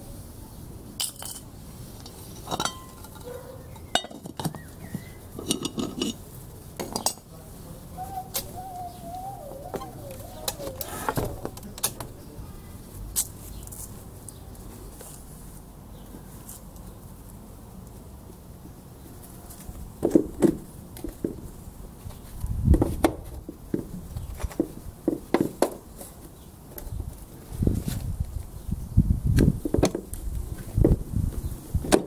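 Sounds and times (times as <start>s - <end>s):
metal lid clinking on cooking pot: 2.4s - 4.5s, 5.4s - 6.2s
bird whistling call: 8.0s - 11.1s.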